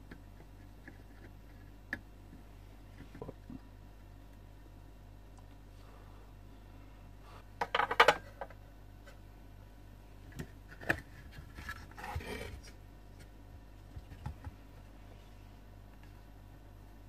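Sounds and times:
circuit board scraping on bench: 0:11.9 - 0:12.7.

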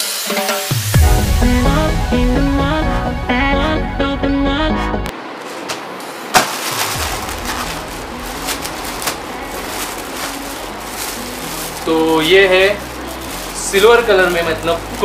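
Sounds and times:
electronic music: 0:00.3 - 0:05.1
plastic mailer tearing and crinkling: 0:05.4 - 0:15.0.

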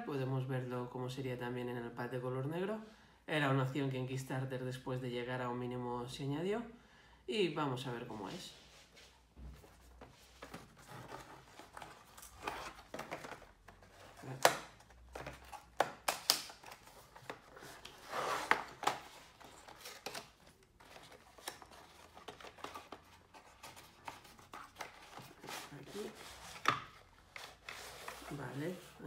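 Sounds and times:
cardboard rustling: 0:08.2 - 0:29.0.

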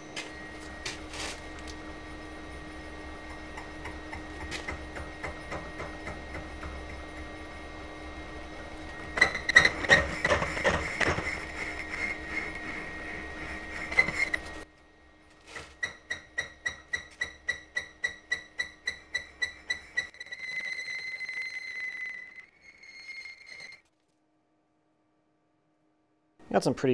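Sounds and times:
milling machine motor hum: 0:00.0 - 0:20.1
tool bit ringing knocks: 0:15.8 - 0:20.0
tool ticking: 0:15.8 - 0:20.2.

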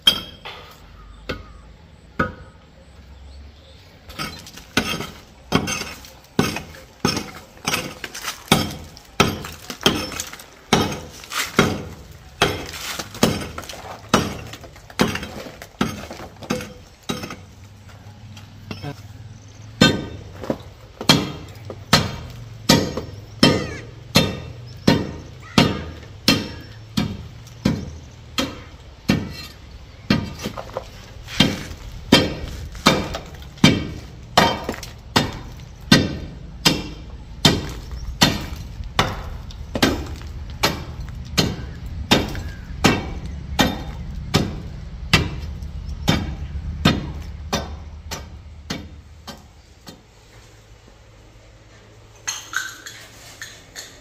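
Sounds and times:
sharp ringing knocks: 0:00.0 - 0:01.6, 0:19.8 - 0:30.4.

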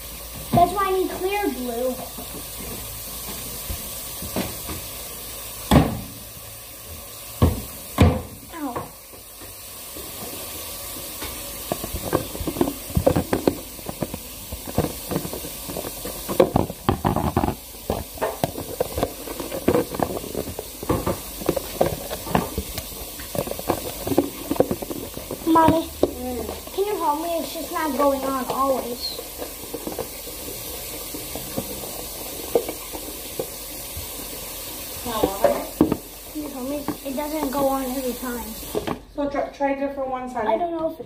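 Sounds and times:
steady hiss: 0:00.0 - 0:39.0
plastic lid clicking and crackling: 0:11.3 - 0:26.7.

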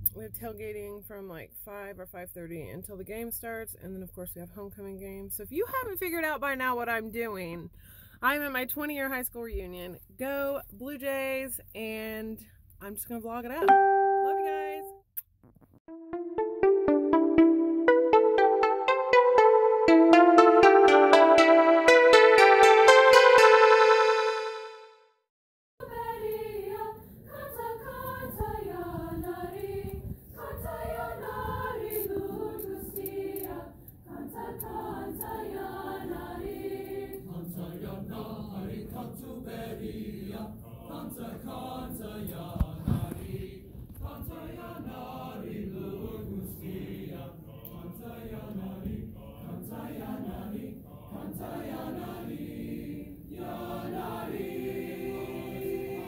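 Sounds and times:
choir singing: 0:16.6 - 0:25.0, 0:25.8 - 0:56.0.

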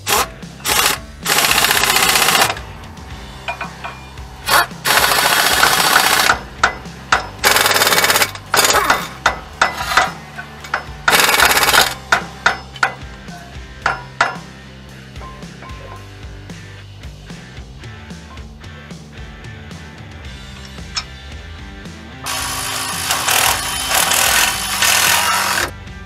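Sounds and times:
pneumatic impact wrench bursts: 0:00.0 - 0:02.6, 0:03.4 - 0:13.0, 0:22.2 - 0:25.7
background music: 0:00.0 - 0:26.0.

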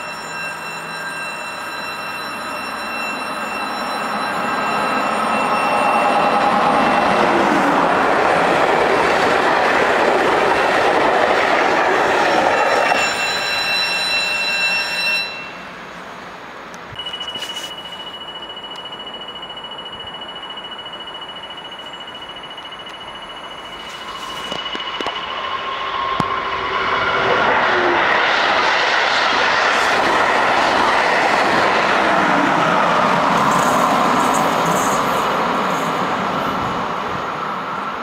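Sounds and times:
thin steady high tone: 0:00.0 - 0:07.8, 0:12.5 - 0:15.8, 0:16.9 - 0:26.7
electric train passing: 0:00.0 - 0:38.0
rail rumble: 0:02.2 - 0:38.0.

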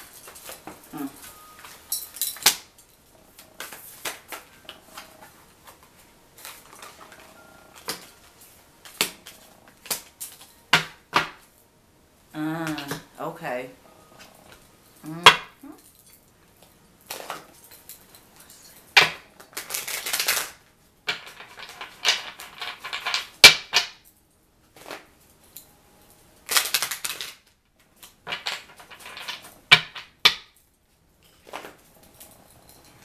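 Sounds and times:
cards shuffling and riffling: 0:19.4 - 0:20.6.

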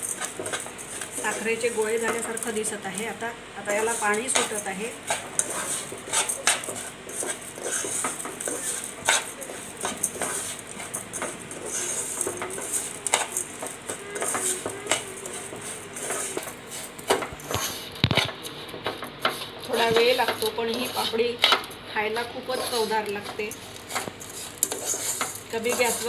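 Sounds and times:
metal spatula scraping a saucepan: 0:03.8 - 0:16.9, 0:22.4 - 0:26.0.

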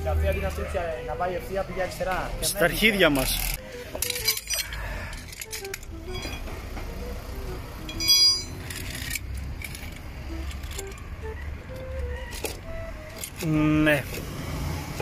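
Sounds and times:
metal tools clinking: 0:03.4 - 0:06.5, 0:07.9 - 0:11.0
ringing metallic clank: 0:06.1 - 0:06.6, 0:07.9 - 0:08.7.

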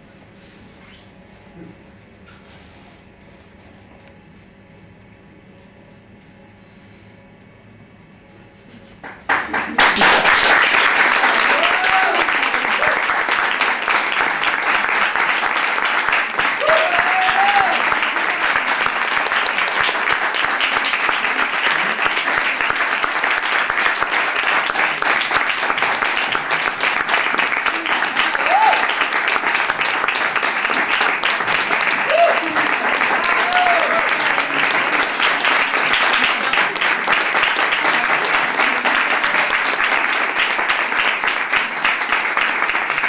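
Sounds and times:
audience applauding: 0:09.0 - 0:43.0.

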